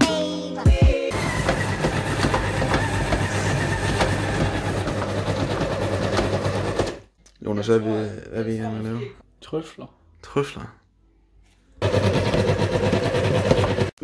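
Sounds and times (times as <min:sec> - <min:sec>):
music: 0:00.0 - 0:01.1, 0:08.6 - 0:11.8
electric stand mixer motor hum: 0:01.1 - 0:07.0, 0:11.8 - 0:14.0.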